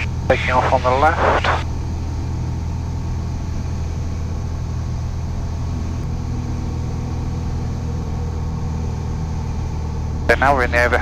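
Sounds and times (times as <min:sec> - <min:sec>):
higher hum: 0:00.0 - 0:02.1
propeller aircraft engine drone: 0:00.0 - 0:11.0.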